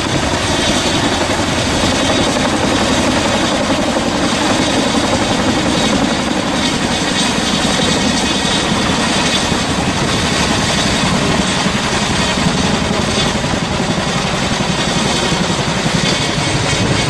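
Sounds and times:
helicopter rotors and engines: 0.0 - 17.0.

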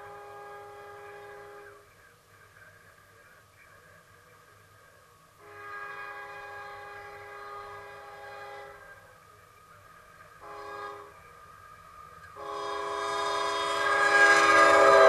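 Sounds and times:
train horn blasts: 0.0 - 1.8, 5.4 - 8.9, 10.4 - 11.2, 12.4 - 15.0.

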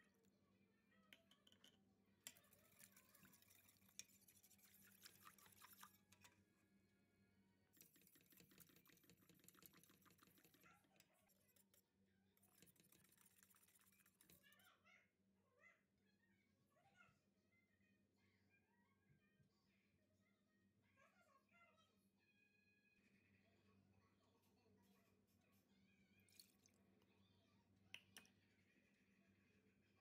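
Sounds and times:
whisk clinking against metal pot: 2.3 - 6.2.

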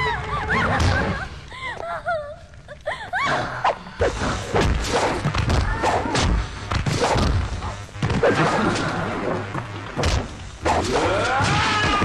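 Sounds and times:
punch and kick impacts: 4.1 - 8.8, 10.0 - 12.0.

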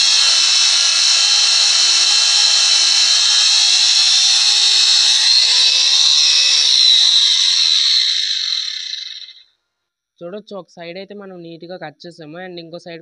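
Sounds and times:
angle grinder cutting metal pipe: 0.0 - 9.4.

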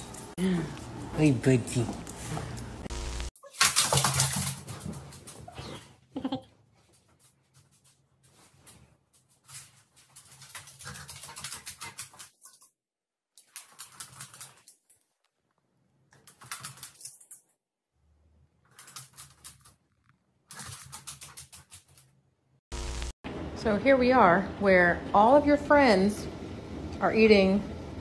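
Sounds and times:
dog claws clicking on wooden floor: 13.4 - 14.8.

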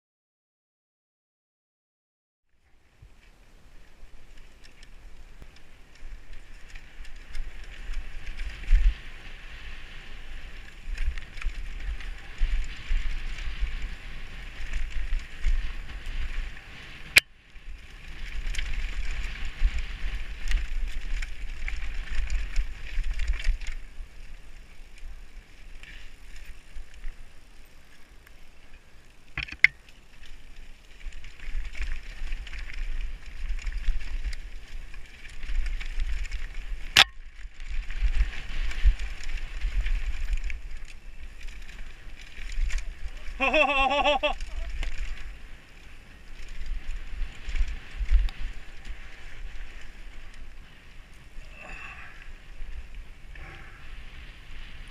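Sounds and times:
wind rumble on microphone: 2.6 - 27.3, 29.6 - 54.9
bike rattling: 3.1 - 54.9
tyres rolling over dirt: 29.2 - 53.4.

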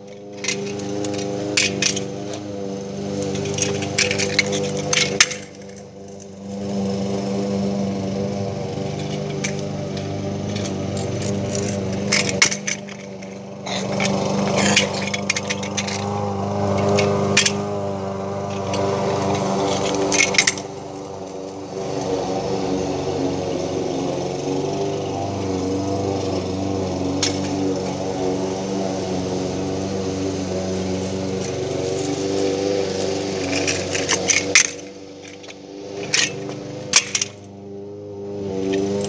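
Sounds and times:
small engine running steadily: 0.0 - 39.0
kick scooter clattering on pavement: 3.2 - 6.4, 8.8 - 20.8.

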